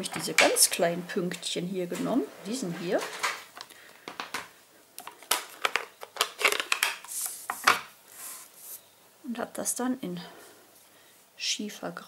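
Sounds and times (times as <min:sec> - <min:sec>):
plastic craft supplies clicking: 0:03.1 - 0:07.0.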